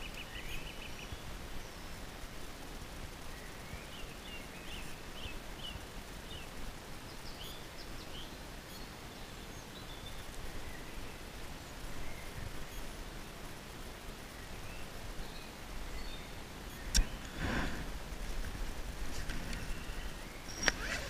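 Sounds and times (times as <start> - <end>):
outdoor background noise: 0.0 - 21.0.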